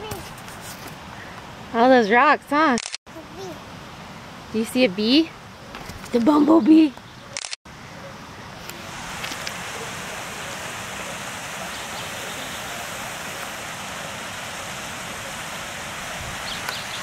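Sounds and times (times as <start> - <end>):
creek water rushing: 8.2 - 17.0.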